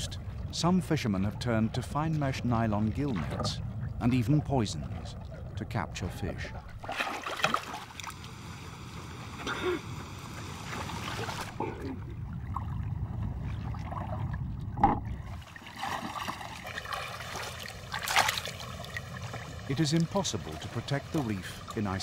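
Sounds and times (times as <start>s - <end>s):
water splashing around boat: 0.0s - 22.0s.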